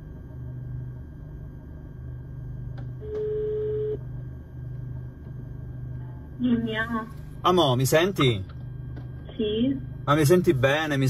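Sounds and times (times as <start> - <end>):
low steady hum: 0.0 - 11.0
telephone ringback tone: 3.0 - 4.0.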